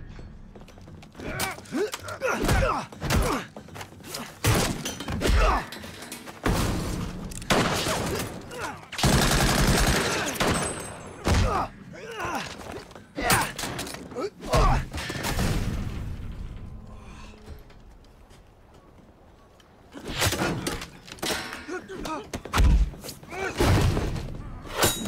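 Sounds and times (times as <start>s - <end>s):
grunts: 11.3s - 15.1s.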